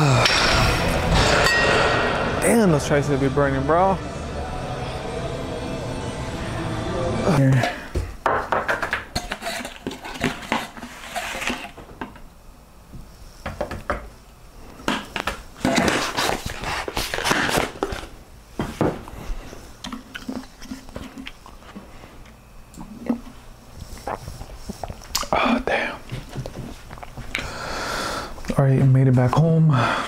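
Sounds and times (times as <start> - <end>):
plastic containers and scoop clattering: 8.4 - 12.2.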